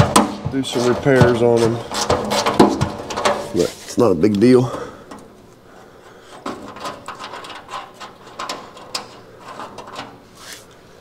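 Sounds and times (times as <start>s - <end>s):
hand tools clicking on metal bolts: 0.0s - 3.6s, 6.3s - 10.2s.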